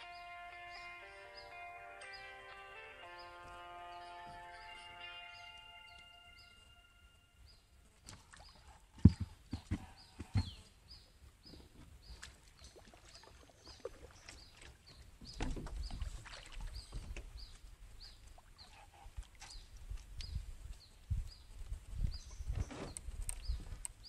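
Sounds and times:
knocks in a boat: 9.0s - 10.6s, 15.2s - 16.0s.

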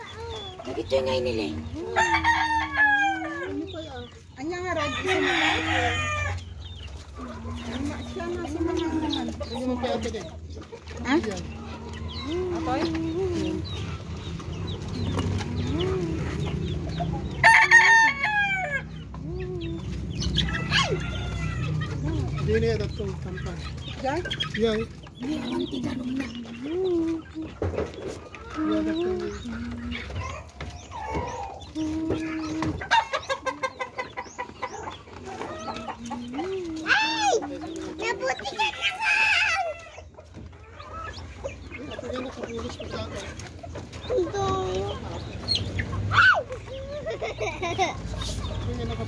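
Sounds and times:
hens clucking: 0.0s - 49.0s
rooster crowing: 1.9s - 3.6s, 17.4s - 18.9s.

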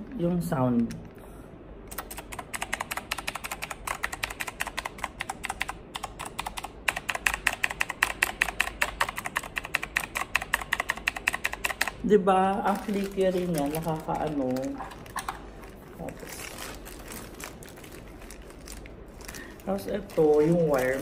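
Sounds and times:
clicky keyboard keystrokes: 1.9s - 12.0s.

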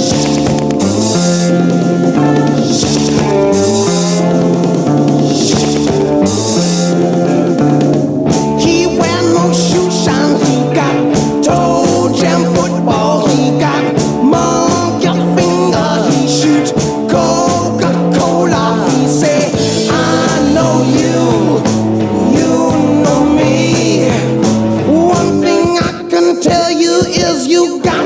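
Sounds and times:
person singing: 0.0s - 7.5s, 8.3s - 28.0s
rock music with guitar: 0.0s - 28.0s
stepping bass line: 0.0s - 28.0s.

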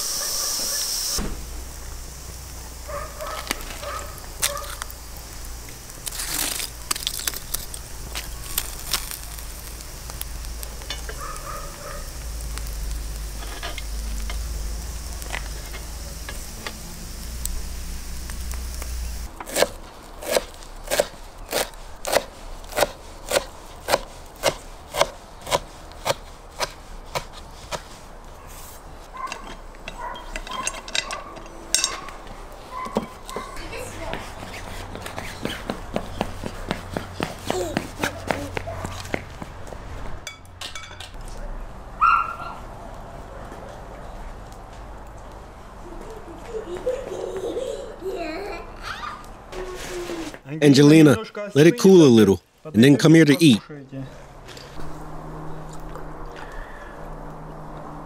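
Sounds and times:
fish sizzling on grill: 0.0s - 34.9s
coals crackling: 0.0s - 58.0s.

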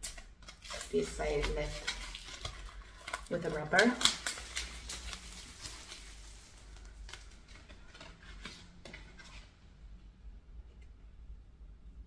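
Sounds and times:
wrapper crinkling and rustling: 0.0s - 9.5s.

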